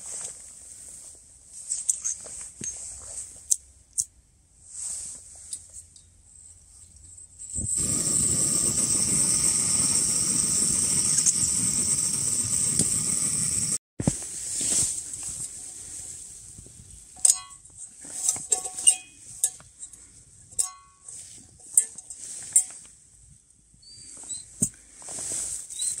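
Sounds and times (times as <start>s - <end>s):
gas stove burner hissing: 7.7s - 13.8s
sharp metallic clinks: 20.6s - 21.2s.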